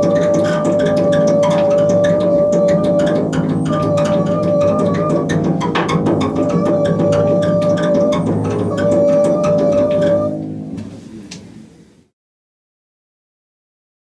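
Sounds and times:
fast even clicking: 0:00.0 - 0:10.3
bowed double bass tone: 0:00.0 - 0:10.8.

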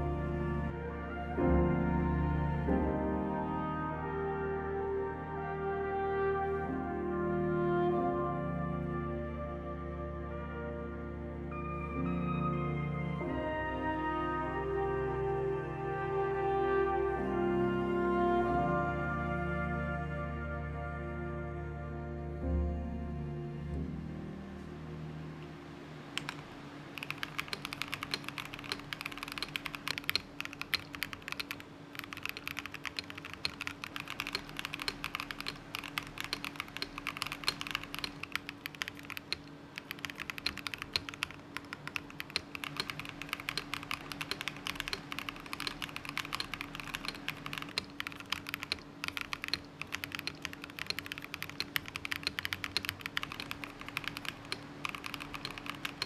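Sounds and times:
mechanical keyboard typing: 0:26.2 - 0:56.0.

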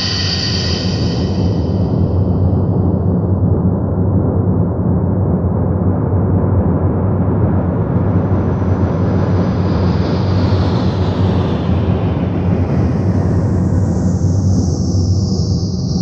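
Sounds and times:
harsh noise drone music: 0:00.0 - 0:02.6.

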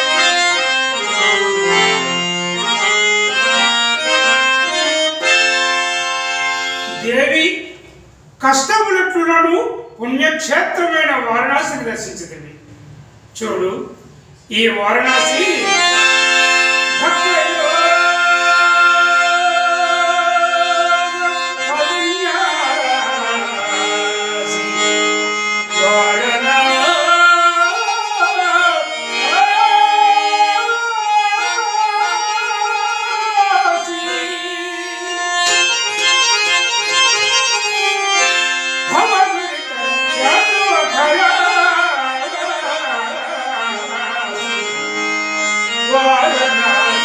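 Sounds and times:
harmonium: 0:00.0 - 0:08.7, 0:09.7 - 0:47.0
man singing ornamented melody: 0:15.0 - 0:35.9, 0:38.8 - 0:47.0.

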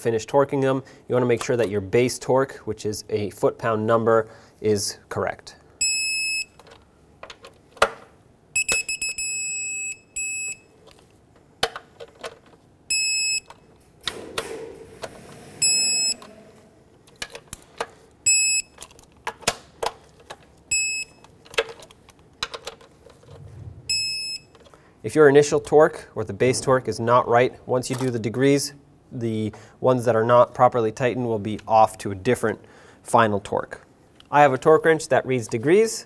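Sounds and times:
torque wrench beeping: 0:08.6 - 0:10.6, 0:15.6 - 0:16.4, 0:18.2 - 0:18.8.

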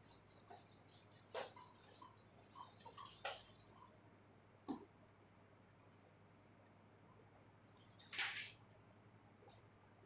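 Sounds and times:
cloth rubbing a whiteboard: 0:00.0 - 0:03.9.

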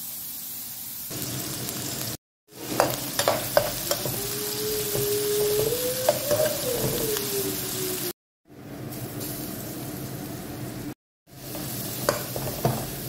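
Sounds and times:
onions sizzling in oil: 0:00.0 - 0:13.0
steady rising and falling tone: 0:04.0 - 0:08.2.

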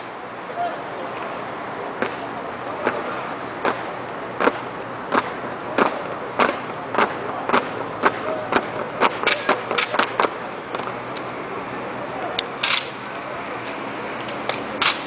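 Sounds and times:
rifles slapped and struck on pavement: 0:04.4 - 0:11.3, 0:12.6 - 0:15.0.

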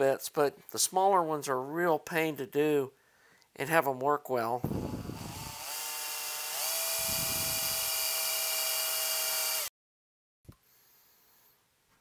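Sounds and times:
cordless drill drilling into metal: 0:04.6 - 0:09.7.

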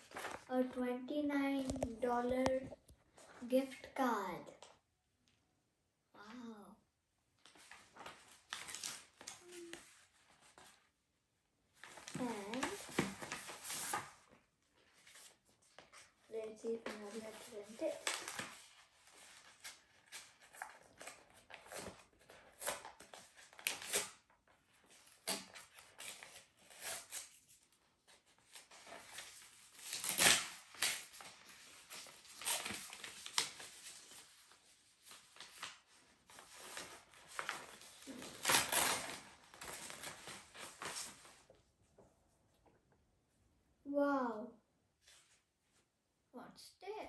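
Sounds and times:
paper rustling and crinkling: 0:00.0 - 0:00.8, 0:07.4 - 0:11.0, 0:11.7 - 0:42.0.

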